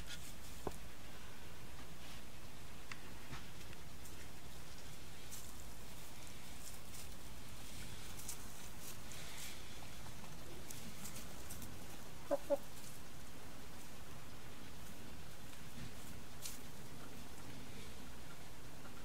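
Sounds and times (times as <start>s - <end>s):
low background noise: 0.0s - 19.0s
chicken clucking: 12.2s - 12.8s.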